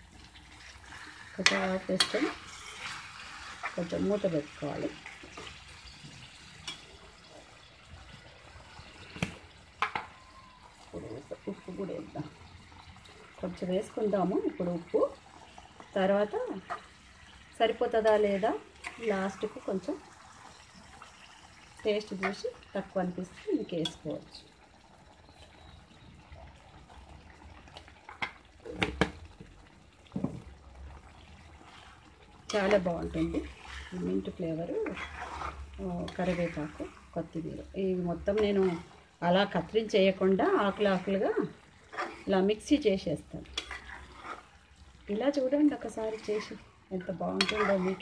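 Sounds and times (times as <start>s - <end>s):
curry simmering in a pan: 0.0s - 48.0s.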